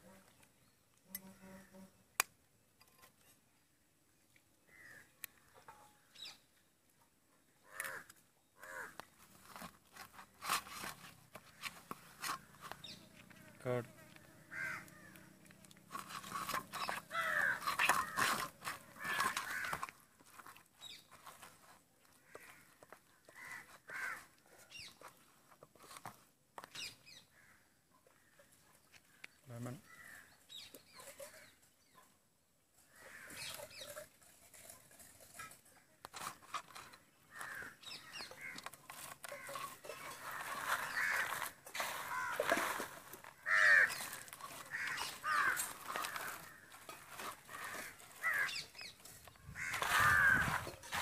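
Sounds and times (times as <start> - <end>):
bird calling: 11.4 - 19.9, 36.7 - 51.0.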